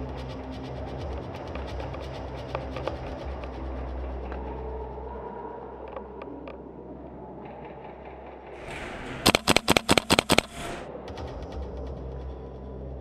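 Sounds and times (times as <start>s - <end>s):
airsoft gunfire cracks: 8.8s - 10.8s.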